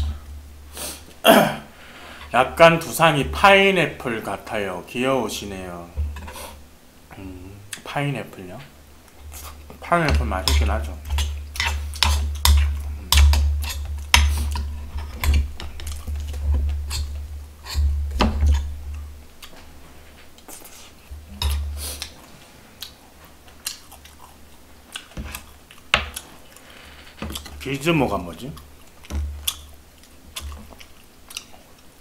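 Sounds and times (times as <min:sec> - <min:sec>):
chewing: 0:20.3 - 0:27.6, 0:28.5 - 0:31.9.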